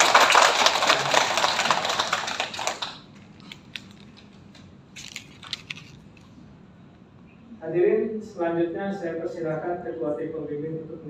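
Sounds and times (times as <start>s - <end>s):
small group applauding: 0.0s - 3.2s.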